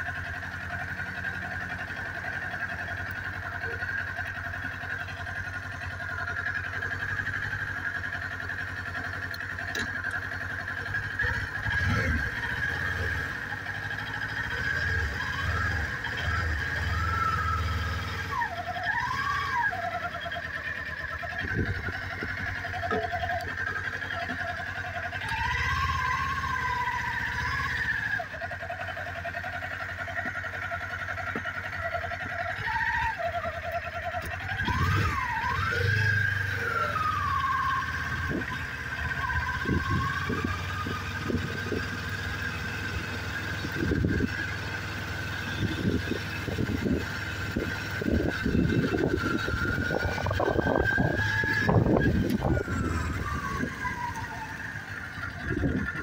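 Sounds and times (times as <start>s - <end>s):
motorcycle engine rumble: 0.0s - 56.0s
wavering higher tone: 48.2s - 56.0s.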